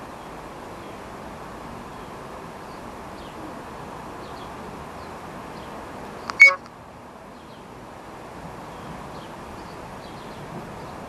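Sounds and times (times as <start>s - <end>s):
distant birds chirping: 6.2s - 6.6s.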